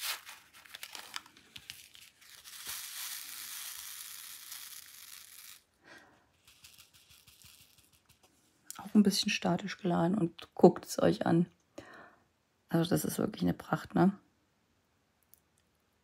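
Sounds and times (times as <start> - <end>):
beads rattling in shaken tray: 1.7 - 5.7, 6.4 - 8.2.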